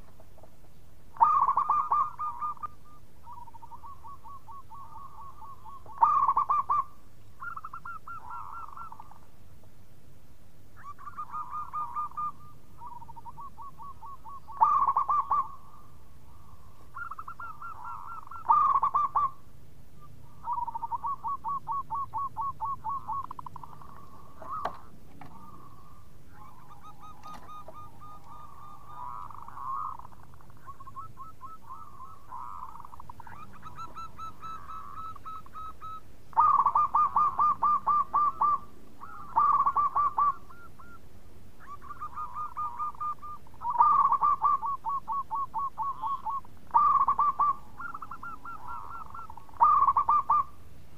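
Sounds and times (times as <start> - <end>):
dove cooing: 0.0 - 9.3, 10.8 - 41.0, 41.6 - 50.6.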